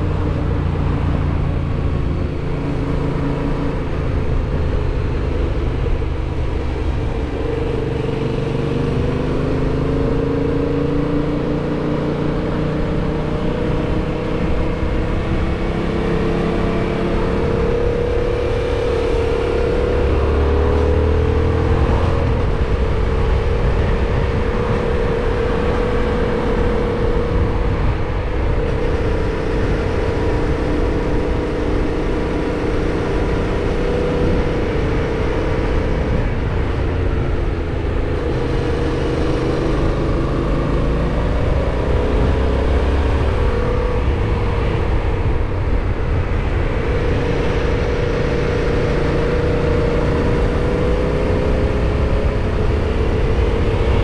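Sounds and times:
motorcycle engine cruising: 0.0s - 54.0s.

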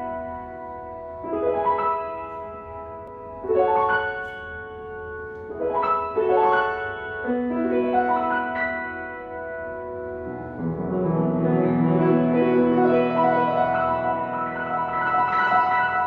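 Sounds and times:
grand piano broken chords: 0.0s - 16.0s.

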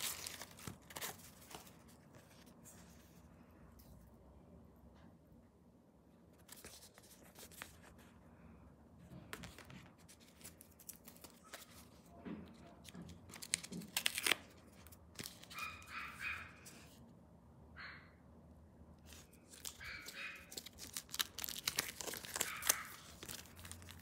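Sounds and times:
package tape cut and torn: 13.3s - 14.6s, 19.5s - 24.0s
dog high-pitched call: 15.5s - 16.6s, 19.8s - 20.6s.

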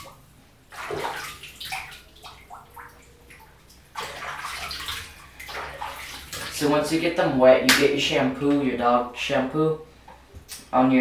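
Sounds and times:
bathwater splashing: 0.0s - 8.2s.

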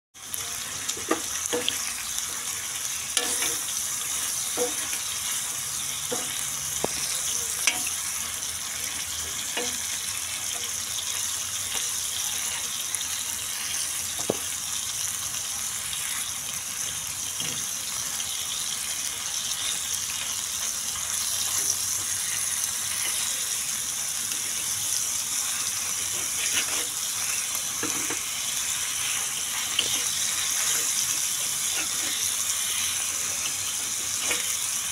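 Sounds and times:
chicken sizzling in hot oil: 0.2s - 34.9s
spatula scraping a pan: 3.0s - 8.2s, 24.5s - 34.8s.

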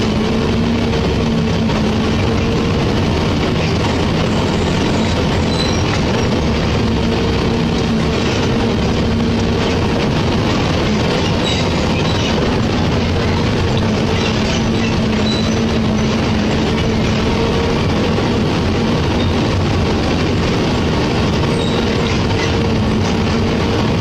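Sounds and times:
engine drone: 0.0s - 24.0s
tyres on loose gravel: 0.0s - 24.0s.

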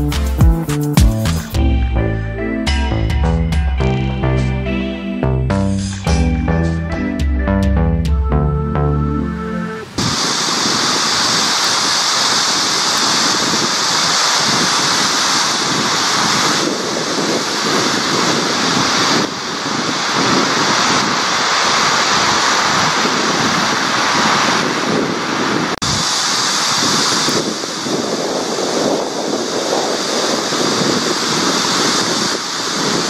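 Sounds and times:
wind: 0.0s - 33.0s
river water: 9.3s - 33.0s.

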